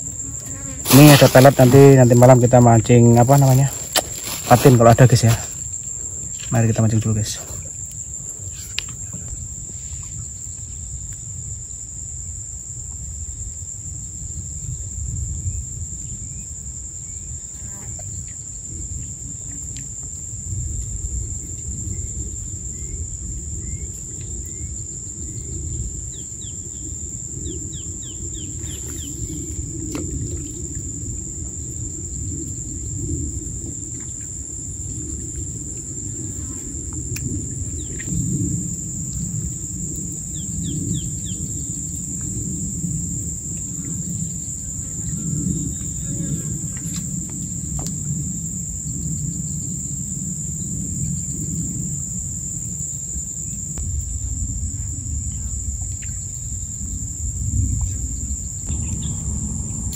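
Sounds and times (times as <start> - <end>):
insects droning: 0.0 - 59.9
low steady rumble: 53.7 - 59.9.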